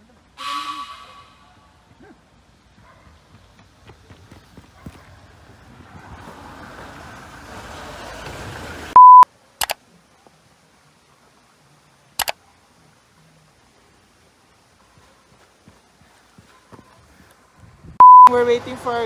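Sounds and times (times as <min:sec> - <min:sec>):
footsteps outdoors: 0:01.7 - 0:09.0, 0:12.7 - 0:19.0
high beep: 0:09.0 - 0:09.2, 0:18.0 - 0:18.4
sharp clicks: 0:09.6 - 0:09.8, 0:12.2 - 0:12.4.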